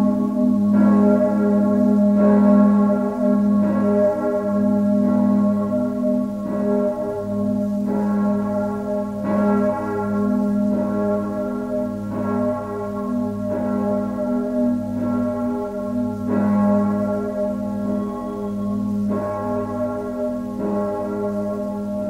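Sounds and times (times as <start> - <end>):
church bells pealing: 0.0 - 22.0.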